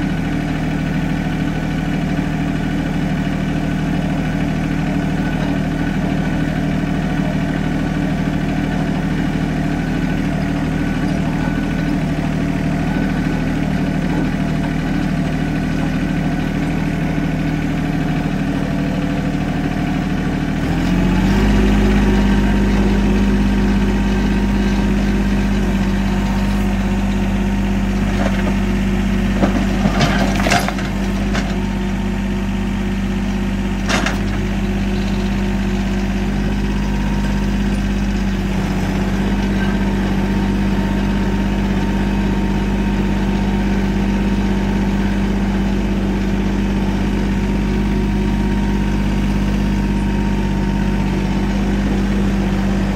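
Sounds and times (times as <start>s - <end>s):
tractor diesel engine running: 0.0s - 52.9s
loader pushing into brush and rock: 20.7s - 32.0s.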